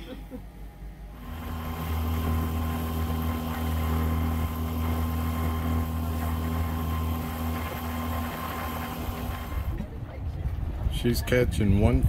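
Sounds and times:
outboard motor running: 0:01.1 - 0:10.0
wind on microphone: 0:09.1 - 0:12.0.

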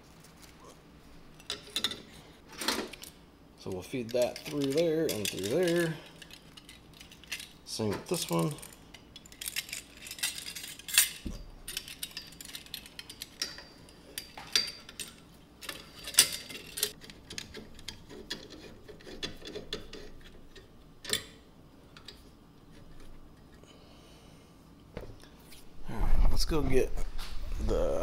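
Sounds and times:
metal clamps clinking: 0:01.4 - 0:18.0.

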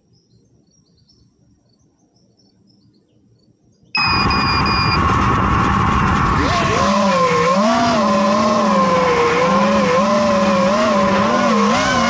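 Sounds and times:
faint crickets chirping: 0:00.0 - 0:04.0
drone motors buzzing whine: 0:00.0 - 0:12.0.

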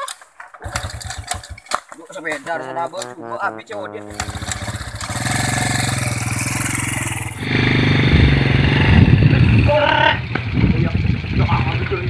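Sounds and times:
motorcycle engine kick-started: 0:00.6 - 0:01.8
motorcycle engine idling: 0:04.2 - 0:12.0.

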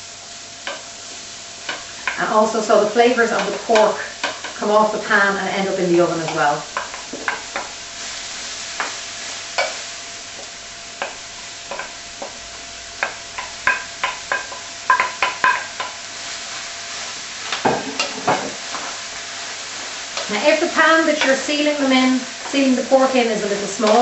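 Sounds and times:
vegetables sizzling in pan: 0:00.0 - 0:24.0
wooden spoon knocking pan: 0:03.3 - 0:04.6, 0:06.3 - 0:07.8, 0:10.4 - 0:12.4, 0:13.0 - 0:16.0.

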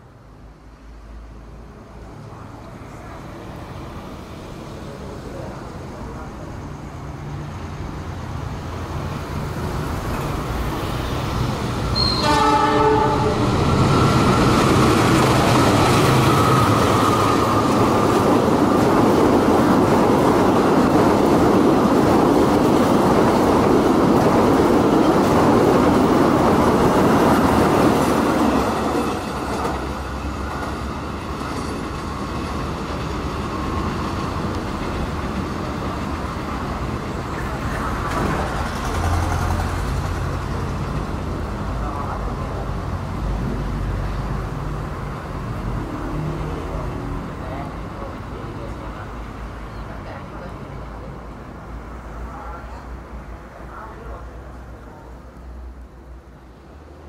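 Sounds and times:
diesel locomotive engine: 0:00.0 - 0:57.0
train passing with rushing rumble: 0:00.0 - 0:57.0
train horn blast: 0:12.0 - 0:13.5.

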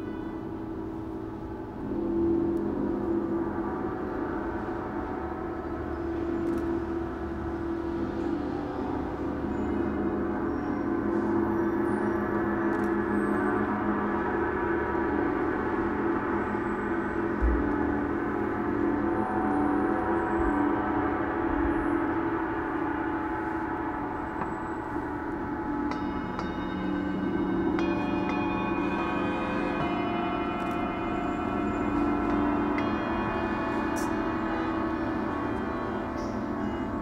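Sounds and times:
gong ringing: 0:00.0 - 0:37.0
higher clear ringing tones: 0:00.0 - 0:37.0.

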